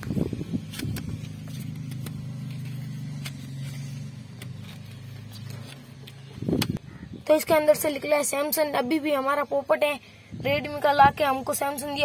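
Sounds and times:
vehicle engine running: 0.0 - 7.0
packaging being handled: 0.6 - 6.3.

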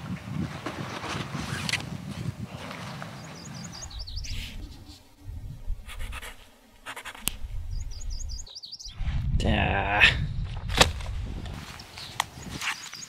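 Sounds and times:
small bird twittering: 3.2 - 4.9, 7.7 - 9.0
low rumble: 3.8 - 6.5
pencil scratching on paper: 5.8 - 7.3.

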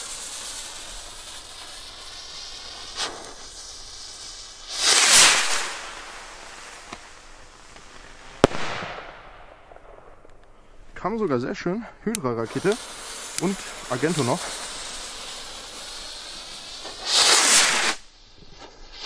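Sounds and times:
firework crackle: 0.0 - 19.0
firework fuse hissing: 0.0 - 19.0
rocket launch whoosh: 2.5 - 7.1, 7.8 - 9.9, 12.5 - 18.2
firework bang: 4.6 - 10.3, 16.7 - 18.0.

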